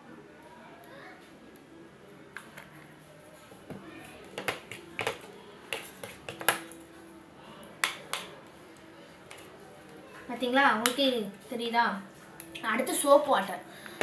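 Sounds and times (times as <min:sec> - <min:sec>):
plastic spoon knocking plastic bowl: 0:04.4 - 0:06.6.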